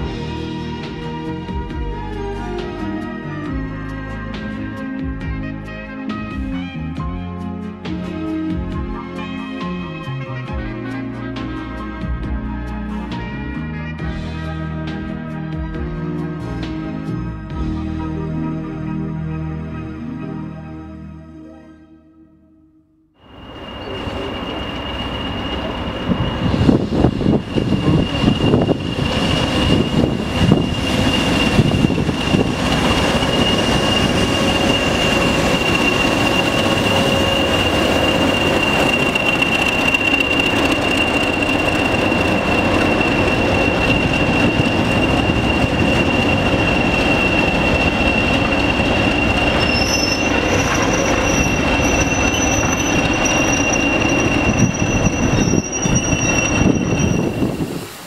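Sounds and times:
diesel locomotive passing: 0:00.0 - 0:21.1, 0:23.2 - 0:58.0
high whistle: 0:23.2 - 0:57.8
high squeal: 0:23.2 - 0:58.0
train coaches rolling by: 0:23.2 - 0:58.0.

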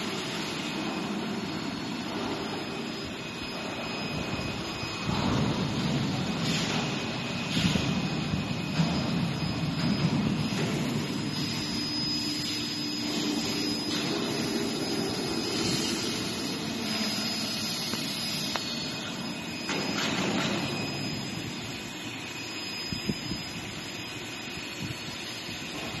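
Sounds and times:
machinery din: 0:03.8 - 0:21.8.

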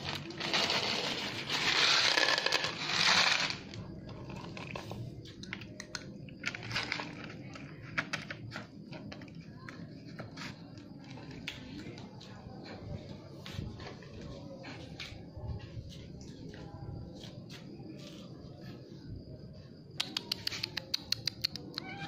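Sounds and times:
cat eating from plastic bowl: 0:02.8 - 0:12.1.

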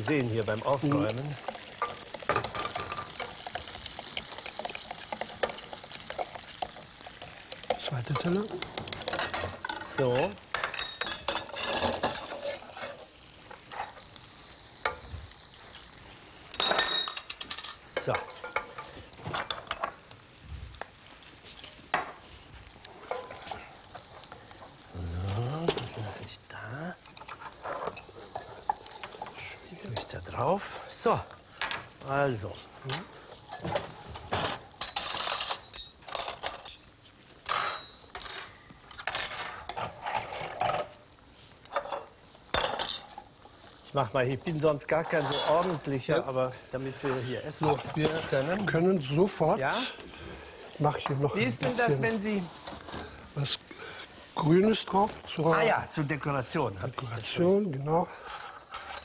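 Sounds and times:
utensils clinking on plates: 0:00.0 - 0:13.0, 0:16.5 - 0:20.0, 0:32.9 - 0:41.0, 0:45.0 - 0:45.9, 0:58.2 - 0:59.0
frying pan sizzling: 0:00.0 - 0:59.0.

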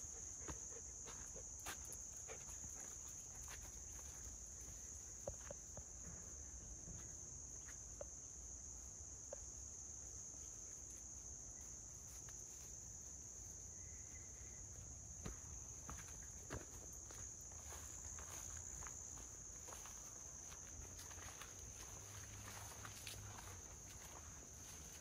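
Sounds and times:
footsteps on forest path: 0:00.0 - 0:06.2, 0:14.7 - 0:25.0
high-pitched insect chorus: 0:00.0 - 0:25.0.

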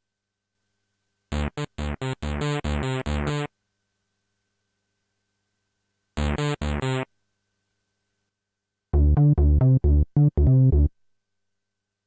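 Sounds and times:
synthesizer bass notes: 0:01.3 - 0:03.5, 0:09.0 - 0:10.9.

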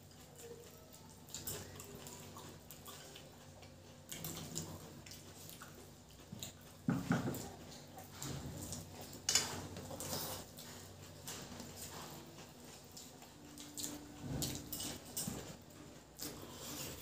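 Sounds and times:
chewing: 0:00.0 - 0:17.0.

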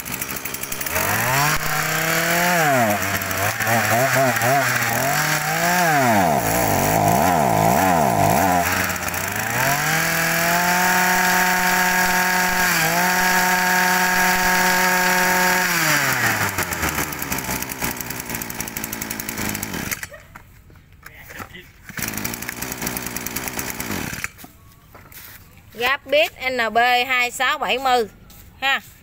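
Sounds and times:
brush cutter engine revving: 0:00.0 - 0:20.1, 0:21.8 - 0:24.5.

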